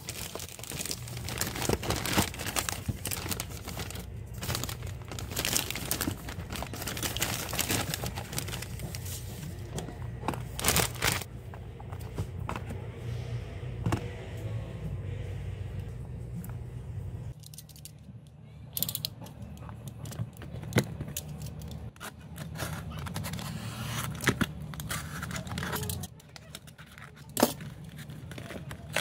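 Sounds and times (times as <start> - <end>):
crinkling handling noise: 0.0 - 12.9, 18.8 - 29.0
low steady hum: 0.0 - 29.0.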